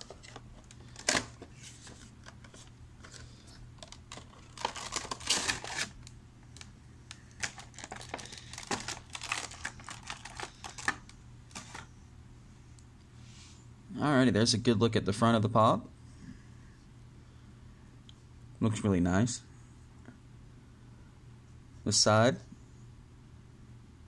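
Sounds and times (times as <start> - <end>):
packaging rustling and crinkling: 0.0 - 11.9.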